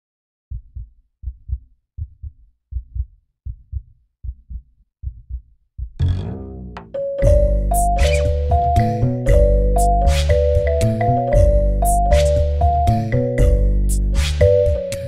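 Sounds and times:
heartbeat thumps: 0.5s - 15.0s
loud music: 6.0s - 15.0s.

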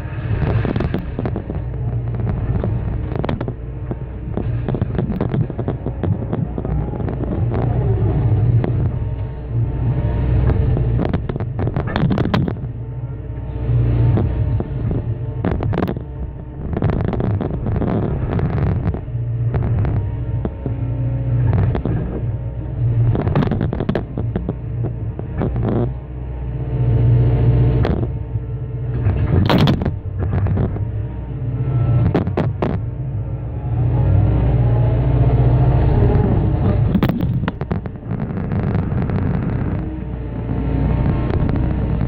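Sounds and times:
excavator diesel engine droning: 0.0s - 42.0s
concrete cracking and crunching: 0.3s - 7.9s, 10.4s - 12.8s, 14.1s - 20.8s, 23.1s - 25.9s, 29.0s - 30.9s, 36.6s - 40.2s.

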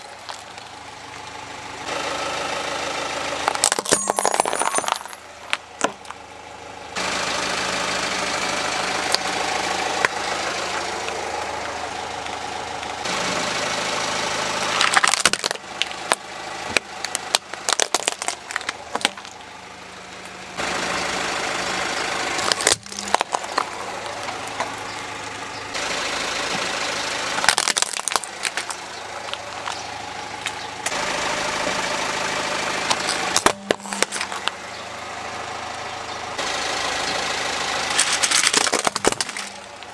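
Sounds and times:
car engine idling: 0.0s - 39.9s
tyre crushing plastic toys: 3.4s - 6.2s, 14.8s - 19.4s, 22.4s - 24.7s, 27.4s - 29.8s, 32.9s - 34.6s, 37.9s - 39.9s.

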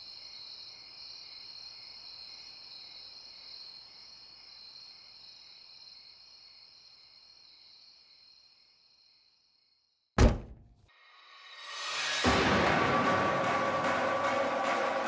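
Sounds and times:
crickets chirping: 0.0s - 10.0s
loud thud with ring-out: 10.2s - 10.7s.

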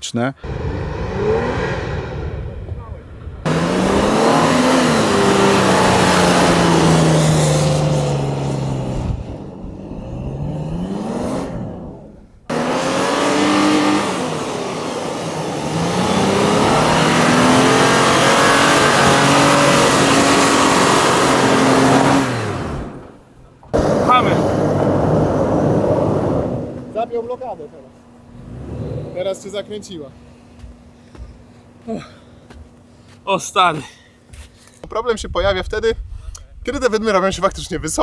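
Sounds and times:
off-road engine revving: 0.4s - 30.1s.

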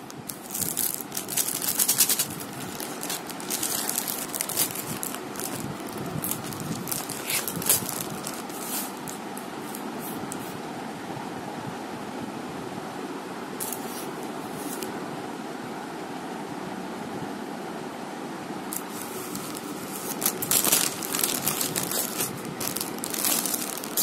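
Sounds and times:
plastic wrapping crinkling: 0.0s - 10.4s, 13.6s - 14.9s, 18.7s - 24.0s.

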